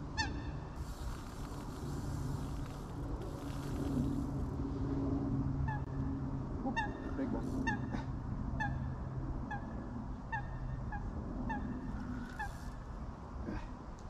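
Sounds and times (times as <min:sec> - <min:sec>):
geese honking: 0:06.7 - 0:08.0.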